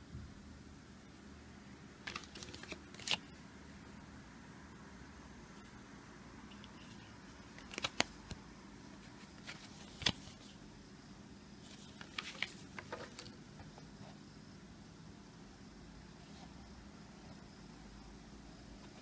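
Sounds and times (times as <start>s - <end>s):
cardboard folder clicks and rustles: 2.0s - 3.2s, 11.8s - 13.4s.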